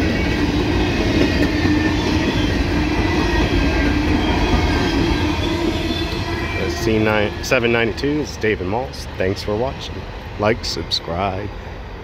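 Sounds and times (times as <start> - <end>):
steel wheels rumbling on rail: 0.0 - 12.0
steady tone: 2.5 - 8.8.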